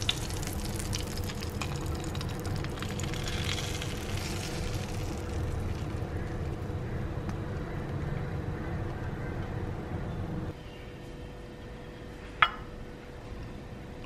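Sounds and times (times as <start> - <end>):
sauce sizzling: 0.0 - 7.0.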